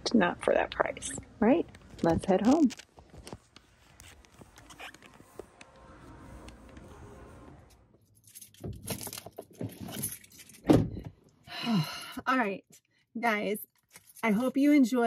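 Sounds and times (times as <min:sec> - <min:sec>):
camera handling rustles and clicks: 0:01.7 - 0:05.6.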